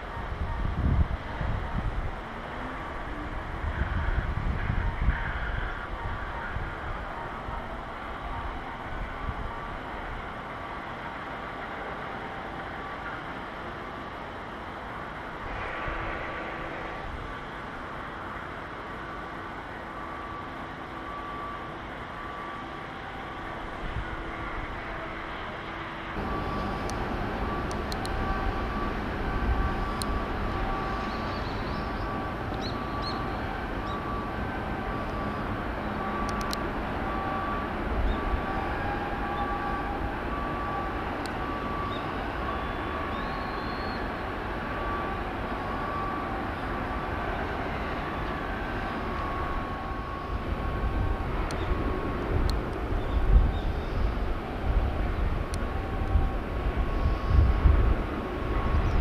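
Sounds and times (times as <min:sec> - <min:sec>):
low rumble of machinery: 0:00.0 - 0:59.0
outdoor background noise: 0:00.0 - 0:59.0
electronic beeper tones: 0:26.2 - 0:36.4.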